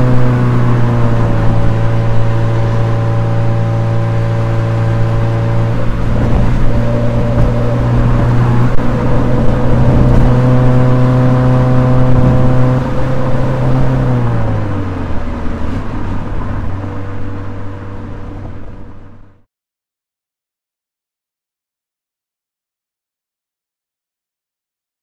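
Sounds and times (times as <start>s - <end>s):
car engine running while driving: 0.0s - 19.4s.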